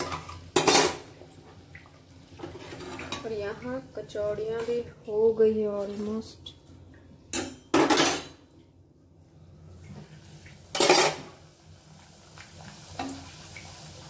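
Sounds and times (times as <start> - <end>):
metal utensils scraping a pan: 10.7 - 11.2.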